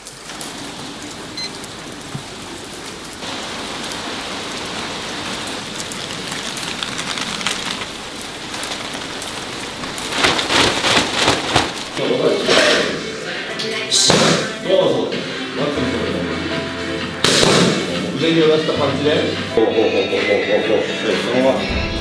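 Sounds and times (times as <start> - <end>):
rain on wet pavement: 0.0 - 12.5
plastic umbrella rustling: 2.1 - 12.9.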